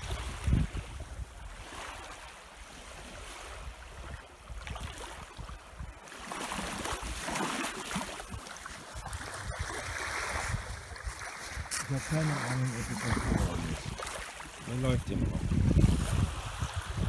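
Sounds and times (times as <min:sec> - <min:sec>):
wind buffeting microphone: 0:00.0 - 0:02.2, 0:08.1 - 0:17.0
small waves lapping on shore: 0:00.0 - 0:17.0.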